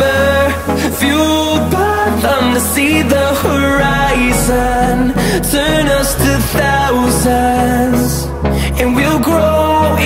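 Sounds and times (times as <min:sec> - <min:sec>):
background pop music: 0:00.0 - 0:10.0.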